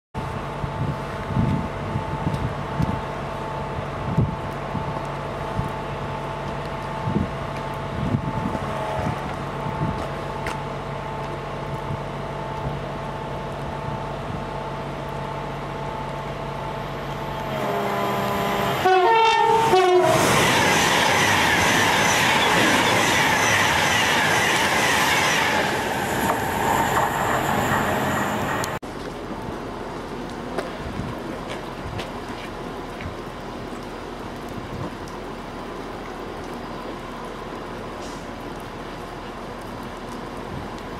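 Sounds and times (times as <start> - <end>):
train horn: 8.5 - 9.4, 17.4 - 25.8.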